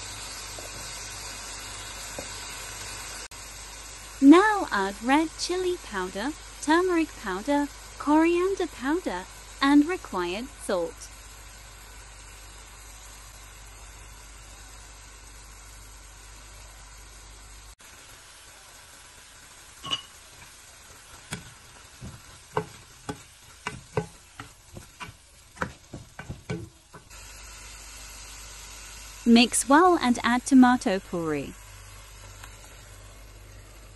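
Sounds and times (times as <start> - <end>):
chicken sizzling in a pan: 0.0 - 33.9
spatula scraping and tapping pan: 21.1 - 27.1.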